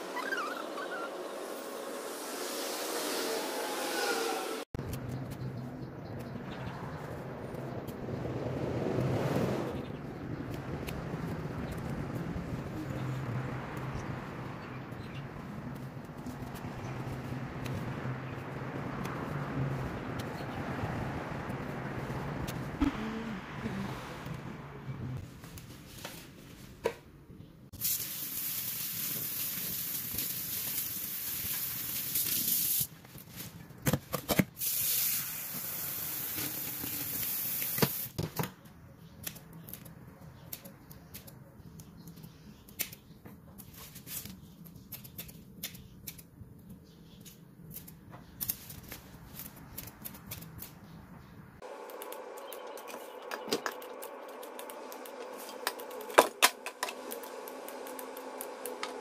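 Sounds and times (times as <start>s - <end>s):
scissors snipping stems: 10.4s - 12.3s, 39.2s - 46.3s, 47.1s - 51.0s, 51.7s - 59.0s.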